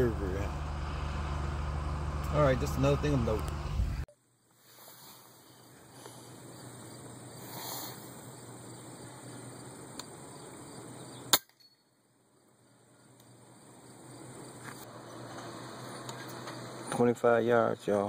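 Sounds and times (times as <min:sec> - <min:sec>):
insects: 0:02.3 - 0:18.0
sharp crack: 0:11.3 - 0:11.7.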